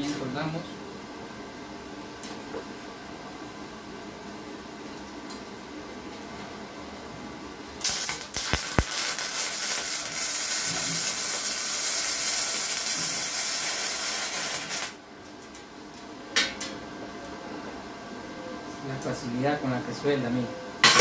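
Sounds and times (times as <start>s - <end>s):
welding arc crackling and hissing: 7.8s - 15.0s.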